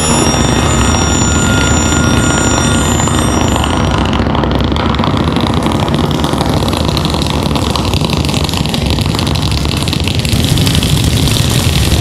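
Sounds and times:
dense rumbling from loudspeakers: 3.6s - 12.0s.

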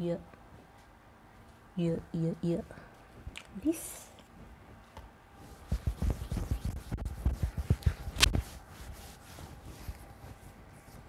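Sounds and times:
fingertips patting skin: 5.5s - 10.2s.

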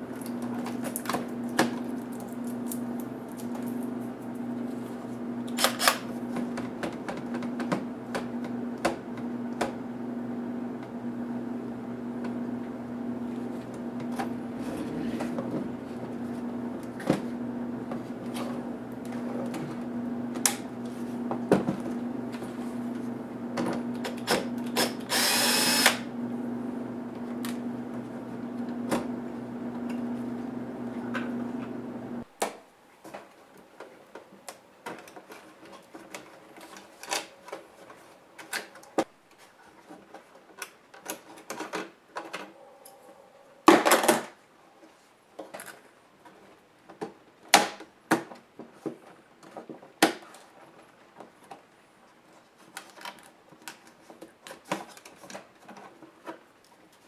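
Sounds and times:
steady low hum: 0.0s - 32.3s, 42.5s - 43.7s.

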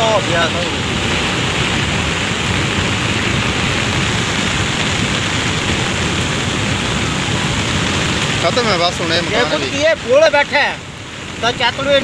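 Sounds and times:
floodwater rushing: 0.0s - 12.0s.

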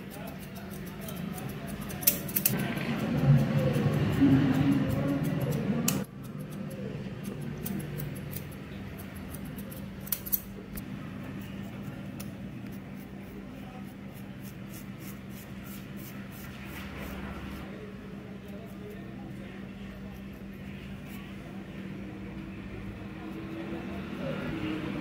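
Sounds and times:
scissors snipping hair: 0.0s - 10.6s.

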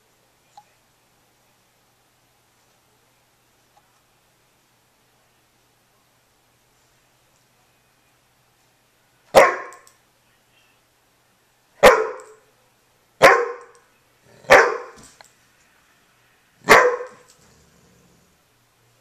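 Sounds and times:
dog barking sharply: 9.3s - 9.8s, 11.8s - 12.4s, 13.2s - 13.7s, 14.5s - 15.0s, 16.6s - 17.3s.

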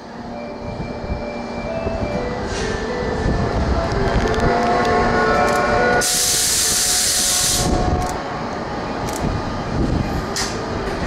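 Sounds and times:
train rumbling over rails: 0.0s - 11.0s
loud hiss of released air: 6.0s - 7.9s.

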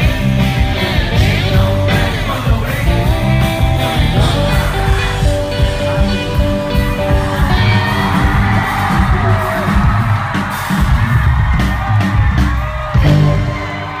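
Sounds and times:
man singing lead vocal: 0.0s - 9.7s
rock band playing: 0.0s - 14.0s.

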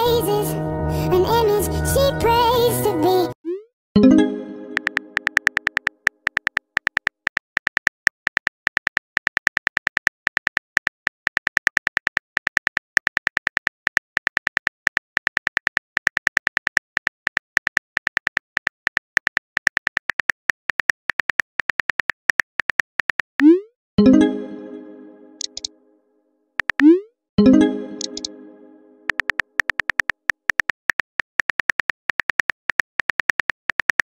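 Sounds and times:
phone keyboard typing clicks: 4.7s - 23.6s, 25.4s - 25.7s, 26.6s - 27.0s, 28.0s - 28.3s, 29.1s - 34.0s.

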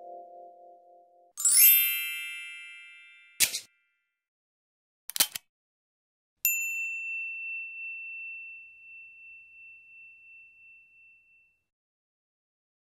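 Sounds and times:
bell ding: 6.5s - 11.7s.

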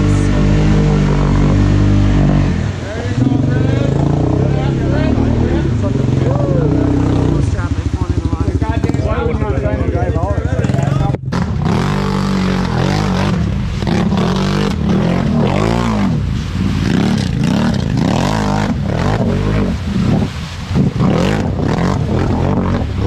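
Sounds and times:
mud and water splashing: 0.0s - 23.0s
quad engine revving: 0.0s - 23.0s.

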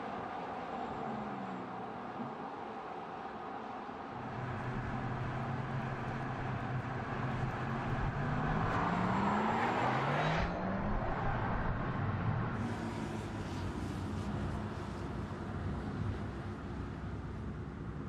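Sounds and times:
electric car drive hum: 0.0s - 18.0s.

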